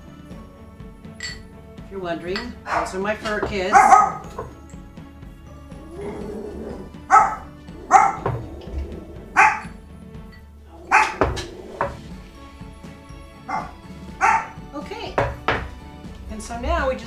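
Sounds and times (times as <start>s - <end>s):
dogs barking: 2.6s - 4.7s, 5.7s - 9.9s, 10.7s - 12.3s, 13.4s - 15.8s.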